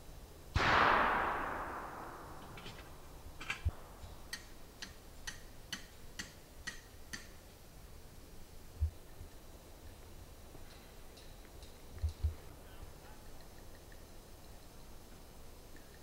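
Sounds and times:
distant gunshot echoing: 0.6s - 4.3s.

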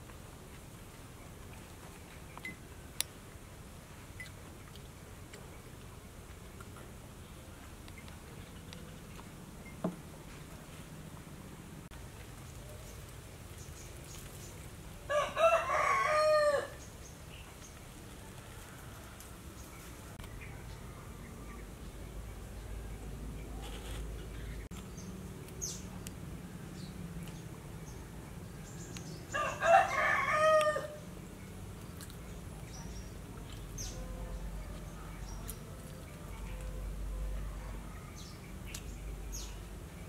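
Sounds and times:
rooster crowing: 15.1s - 16.8s, 29.3s - 31.0s.

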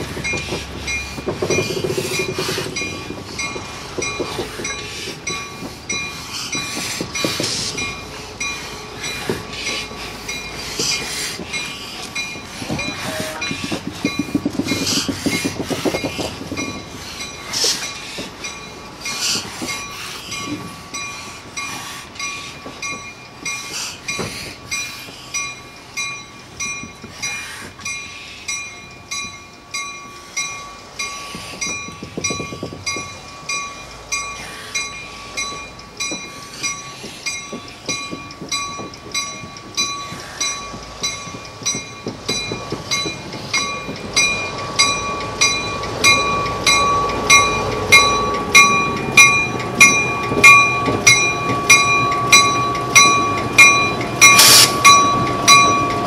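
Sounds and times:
diesel locomotive engine: 0.0s - 56.0s
locomotive bell ringing: 0.0s - 56.0s.

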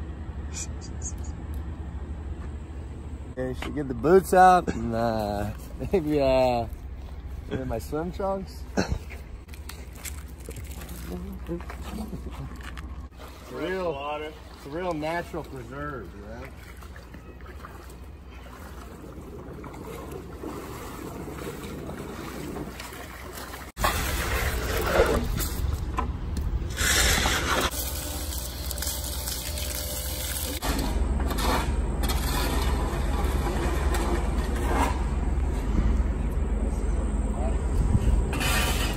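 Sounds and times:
water sloshing and scraping: 4.8s - 36.0s, 37.9s - 38.9s
wind rumbling on microphone: 37.6s - 38.9s.

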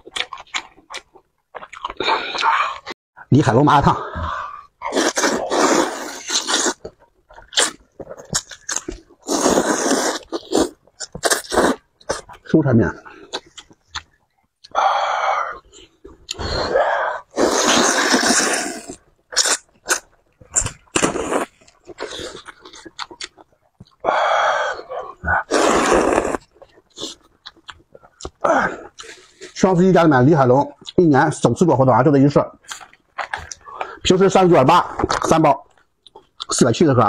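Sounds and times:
chewing: 0.0s - 3.0s, 4.8s - 14.8s, 17.2s - 24.0s, 24.8s - 29.6s, 32.6s - 34.0s
person slurping noodles: 4.1s - 6.9s, 9.2s - 12.2s, 16.3s - 20.0s, 20.6s - 22.7s, 24.1s - 27.2s.

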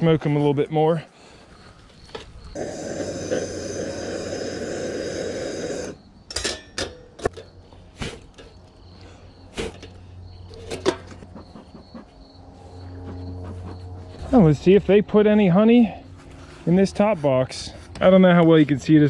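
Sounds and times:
propane torch flame roaring: 2.5s - 6.1s
metallic clanks of tin can: 6.3s - 7.5s.

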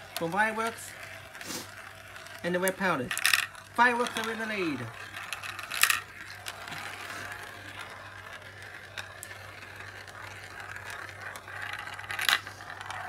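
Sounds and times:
marble clacking on plastic: 0.0s - 13.0s
marbles rolling in plastic funnel: 0.0s - 13.0s.

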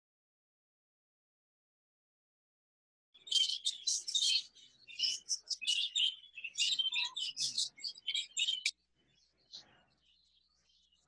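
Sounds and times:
budgerigars chirping and warbling: 3.2s - 11.0s.

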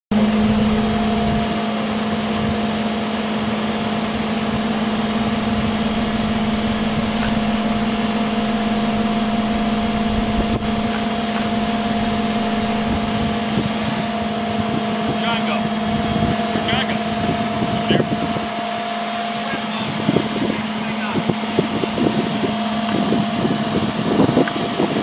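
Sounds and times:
diesel engine humming: 0.1s - 24.2s.

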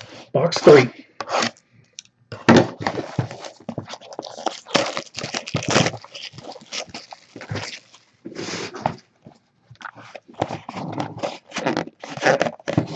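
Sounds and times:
cardboard box scraping and knocking: 2.4s - 6.6s, 9.9s - 12.9s
plastic wrap crinkling: 2.8s - 8.3s, 9.7s - 12.9s.

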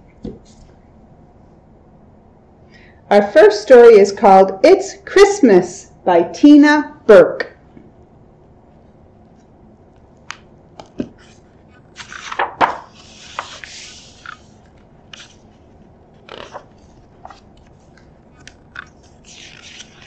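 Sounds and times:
book pages turning: 9.3s - 20.0s
paper sliding: 11.2s - 20.0s.

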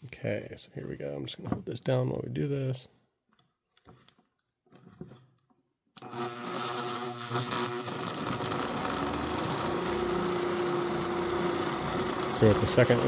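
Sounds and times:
rotary tool running: 6.0s - 13.0s.

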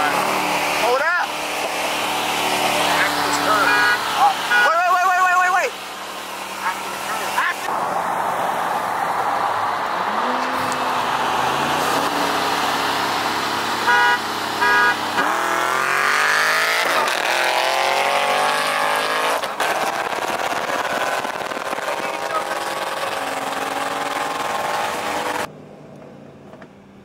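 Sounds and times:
car engine accelerating: 0.0s - 27.0s
car horn honks: 3.3s - 5.5s, 13.8s - 15.3s.

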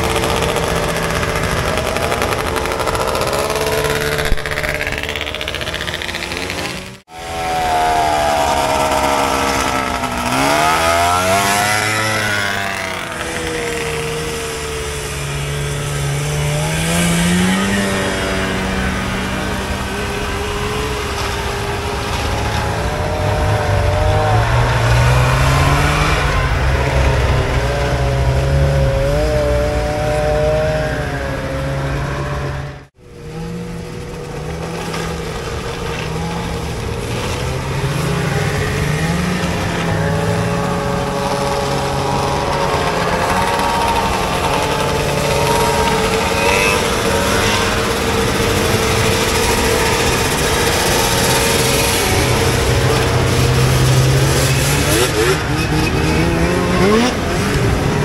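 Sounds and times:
snowmobile engines revving past: 0.0s - 58.0s.

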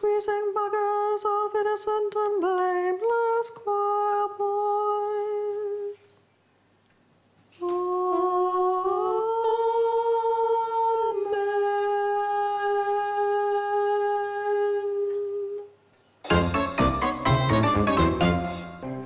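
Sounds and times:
woman singing wordless melody: 0.0s - 6.2s, 7.5s - 15.8s.

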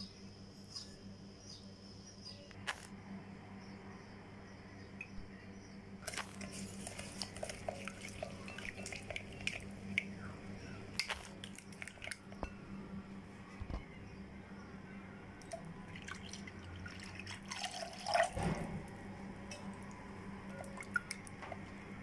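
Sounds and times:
low hum: 0.0s - 17.3s
spatula stirring in glass bowl: 6.0s - 10.1s.

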